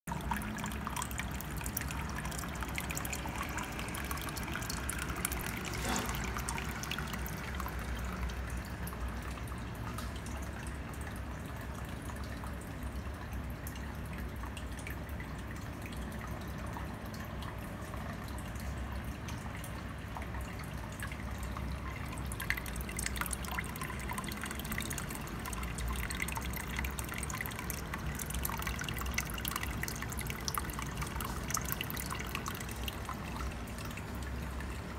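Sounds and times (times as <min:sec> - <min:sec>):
water trickling and splashing: 0:00.1 - 0:34.9.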